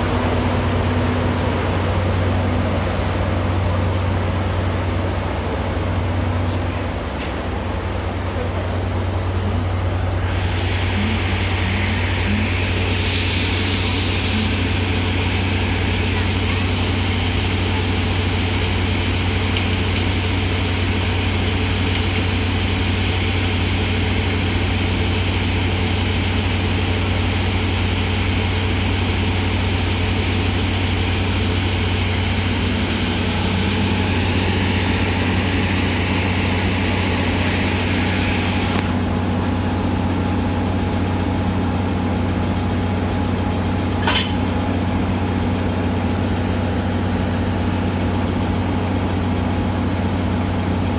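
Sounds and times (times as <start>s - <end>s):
locomotive idling hum: 0.0s - 50.9s
hiss: 10.2s - 15.0s.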